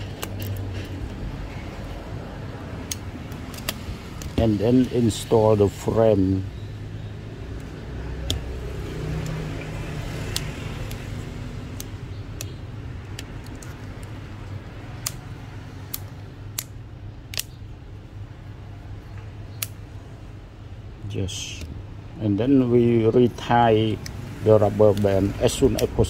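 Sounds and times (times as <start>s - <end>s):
small phone parts clicking: 0.0s - 5.4s, 7.4s - 17.9s, 19.0s - 20.0s, 23.9s - 26.0s.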